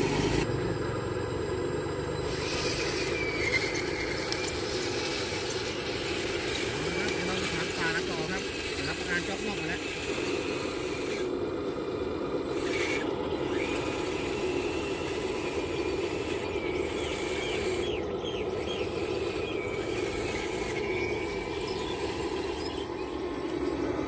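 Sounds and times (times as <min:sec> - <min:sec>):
toy excavator motors running: 0:00.0 - 0:24.0
short high squeaks: 0:02.3 - 0:05.8.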